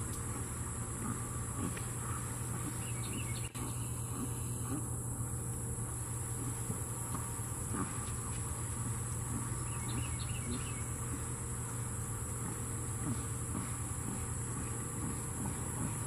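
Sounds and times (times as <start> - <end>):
insects droning: 0.0 - 16.0
low steady hum: 0.0 - 16.0
faint chirps: 9.3 - 11.7.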